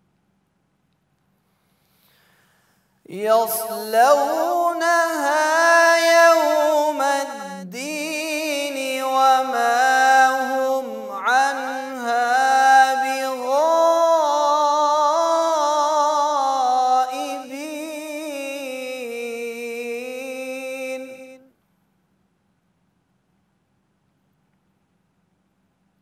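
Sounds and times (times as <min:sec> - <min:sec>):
man reciting melodically: 0:03.0 - 0:21.5.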